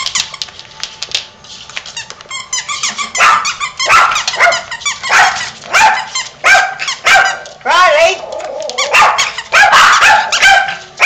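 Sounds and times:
dogs whining: 0:02.5 - 0:07.4, 0:08.2 - 0:10.5
small dogs yipping: 0:02.7 - 0:07.5, 0:08.5 - 0:11.0.

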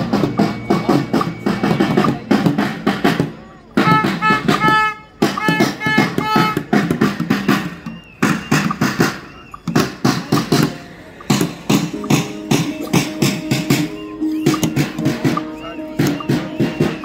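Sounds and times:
marching drum beating: 0:00.0 - 0:17.0
voices of marchers: 0:00.0 - 0:17.0
short pitched notes: 0:07.8 - 0:17.0.

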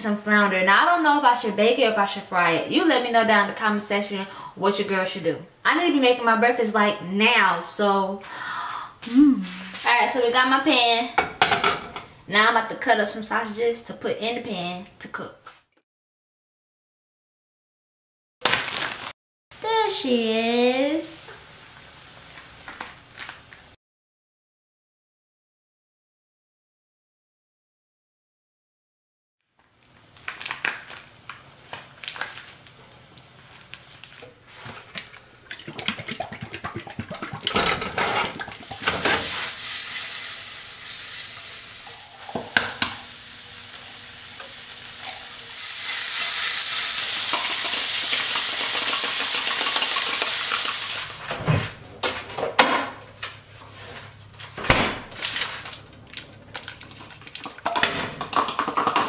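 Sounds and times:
sausage sizzling in a frying pan: 0:38.6 - 0:51.2.

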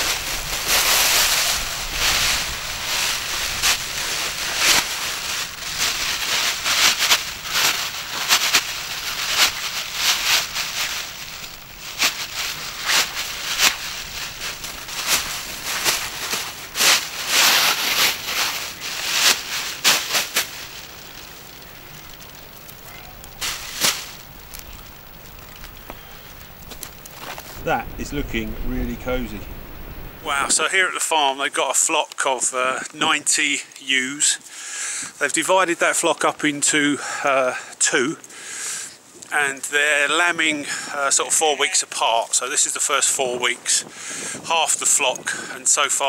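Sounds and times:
plastic crinkling: 0:00.0 - 0:30.5
straw rustling: 0:00.0 - 0:30.5.

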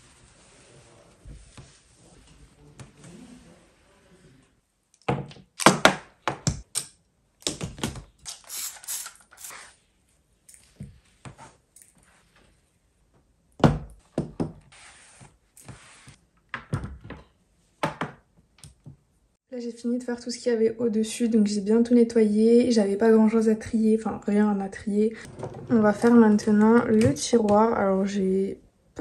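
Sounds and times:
cloth wiping surfaces: 0:00.0 - 0:04.5, 0:14.7 - 0:16.2.

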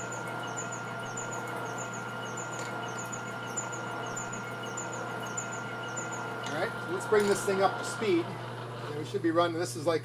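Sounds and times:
faint high chirp: 0:00.0 - 0:06.5
milling machine hum: 0:00.0 - 0:10.0.

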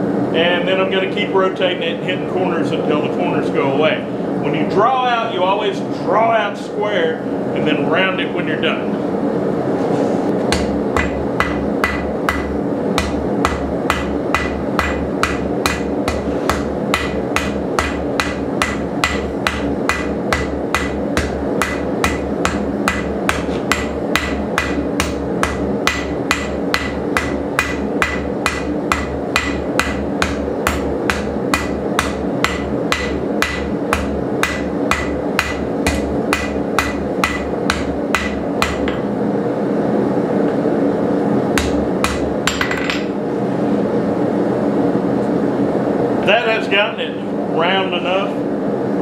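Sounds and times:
steady background noise: 0:00.0 - 0:49.0
hammer striking steel on anvil: 0:10.5 - 0:39.0, 0:41.6 - 0:43.1.

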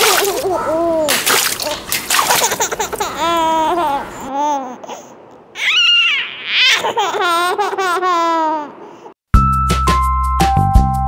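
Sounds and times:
water balloons bursting and splashing: 0:00.0 - 0:03.1
child laughing: 0:00.0 - 0:04.9, 0:05.6 - 0:08.8.

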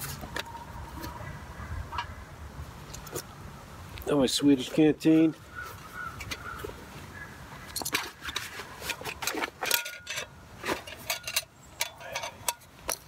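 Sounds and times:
metal clinks and knocks: 0:07.8 - 0:13.0.

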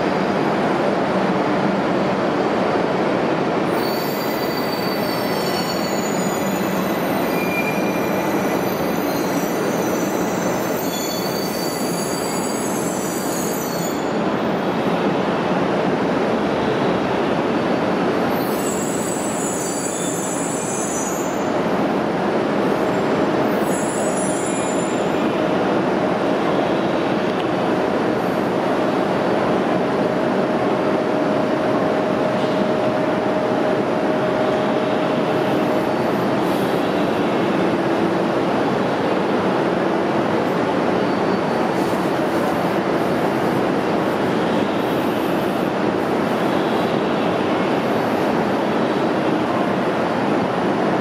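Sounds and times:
train rumbling: 0:00.0 - 0:51.0
high-pitched train squeals: 0:03.6 - 0:14.8, 0:18.2 - 0:21.9, 0:22.7 - 0:25.4, 0:40.8 - 0:49.2.

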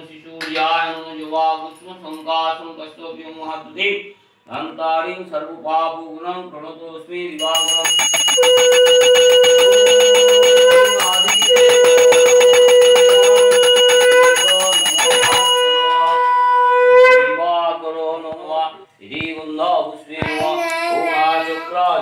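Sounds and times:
handbell ringing fast: 0:07.4 - 0:16.3
conch shell blasts: 0:07.4 - 0:17.6.

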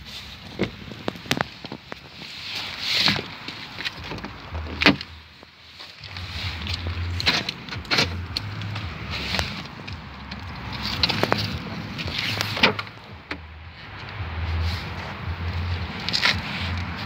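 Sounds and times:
low rumble: 0:06.0 - 0:17.0.

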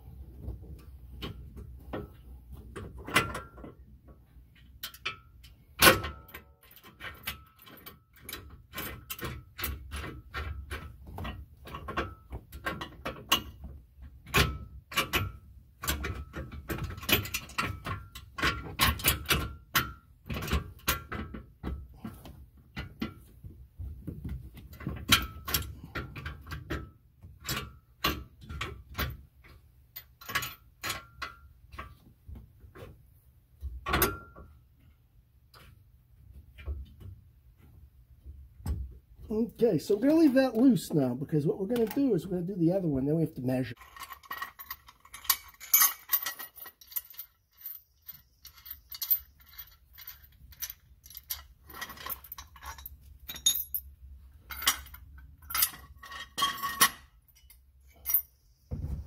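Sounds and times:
metallic clicks and clinks: 0:43.8 - 0:53.9, 0:54.5 - 0:58.5.

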